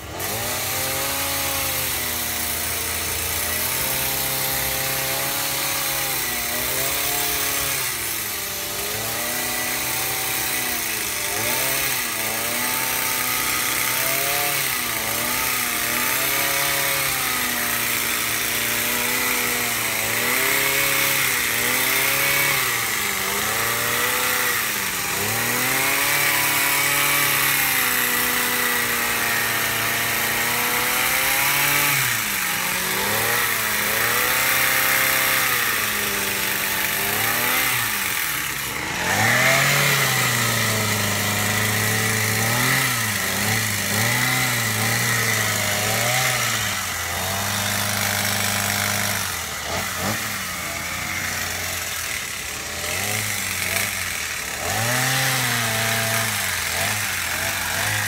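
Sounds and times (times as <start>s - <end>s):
gas hedge trimmer engine: 0.0s - 58.0s.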